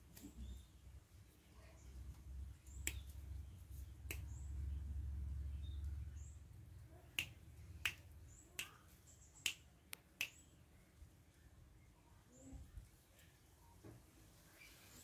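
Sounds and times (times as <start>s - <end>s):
fingers snapping: 2.8s - 3.1s, 4.0s - 4.3s, 7.1s - 8.8s, 9.4s - 10.4s.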